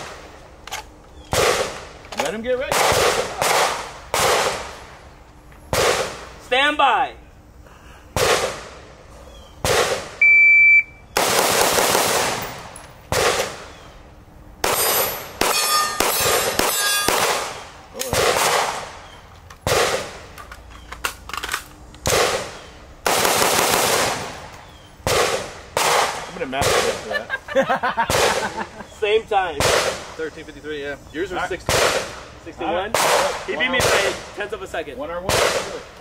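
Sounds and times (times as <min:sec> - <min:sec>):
rifle shots ringing: 0:02.7 - 0:04.8, 0:11.2 - 0:13.8, 0:14.6 - 0:19.0, 0:21.4 - 0:27.0
shot timer beep: 0:10.2 - 0:11.0.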